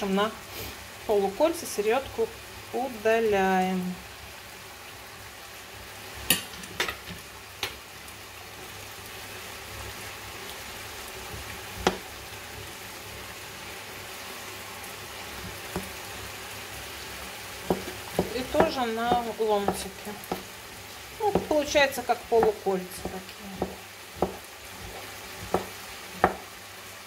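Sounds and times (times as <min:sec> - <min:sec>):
meat sizzling in a frying pan: 0:00.0 - 0:27.0.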